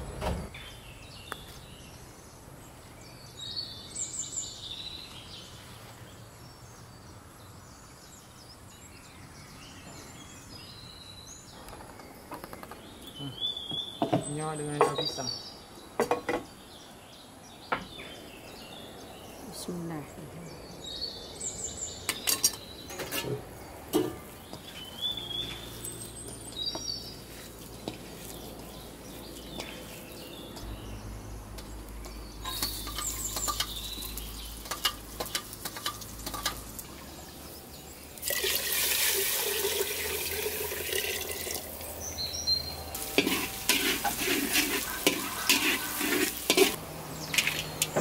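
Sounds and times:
metal spatula scraping wok: 22.3 - 24.3, 32.4 - 33.8, 43.0 - 48.0
food sizzling in hot oil: 32.4 - 36.9, 38.2 - 41.8, 42.9 - 47.6.

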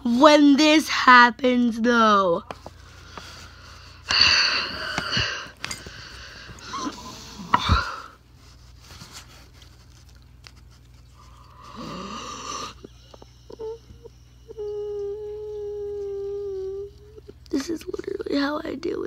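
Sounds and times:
girl breathing: 2.9 - 8.2
girl wordless vocal sounds: 13.5 - 18.5.

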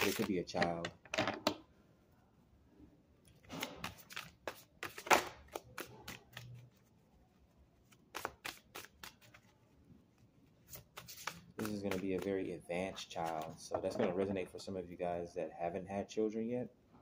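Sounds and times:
cards being shuffled: 0.0 - 0.7, 3.4 - 6.9, 7.8 - 9.7, 10.5 - 14.2.

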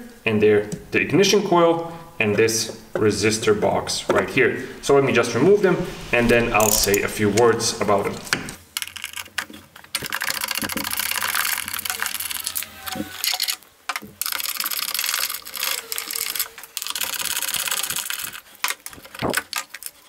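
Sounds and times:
metal scraping and rattling: 3.0 - 8.6.

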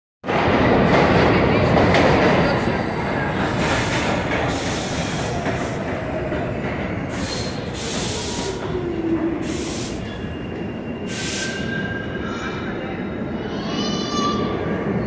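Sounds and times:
short bursts of hiss: 9.4 - 10.0, 11.1 - 11.7.

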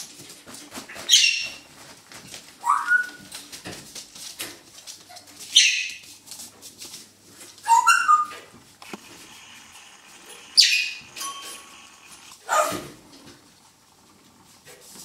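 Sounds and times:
puppy scratching and scuffling: 0.0 - 10.2
puppies yipping and squeaking: 1.0 - 1.6, 2.6 - 3.4, 5.1 - 6.1, 7.6 - 12.8.

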